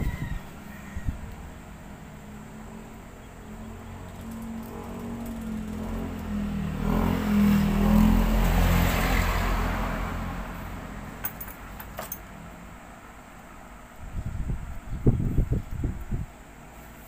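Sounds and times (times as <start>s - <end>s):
vehicle passing by: 1.4s - 11.7s.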